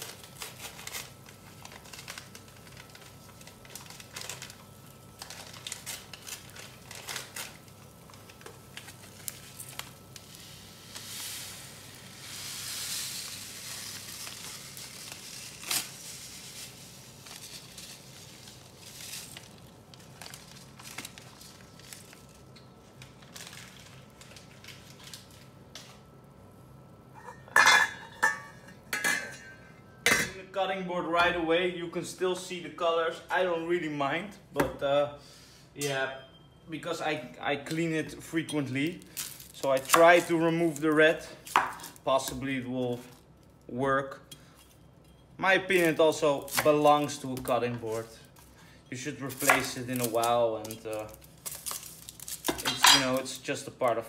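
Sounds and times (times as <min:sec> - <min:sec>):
water boiling in a pot: 0:00.0 - 0:25.4
hiss: 0:10.4 - 0:14.1.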